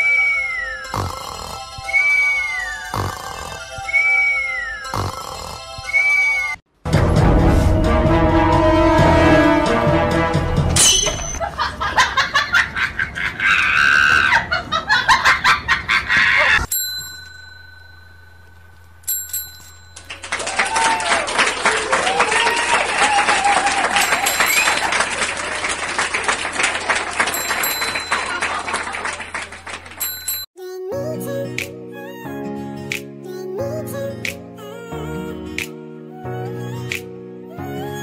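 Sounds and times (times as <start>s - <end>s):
desk bell dinging: 16.7s - 20.2s.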